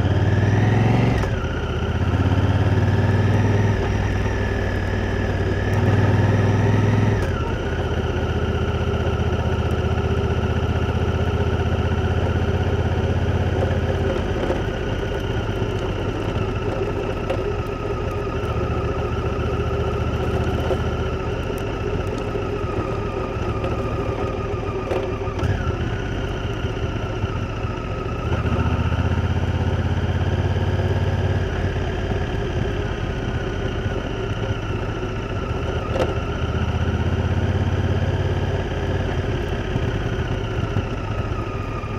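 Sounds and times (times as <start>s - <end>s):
motorcycle engine running: 0.0s - 41.9s.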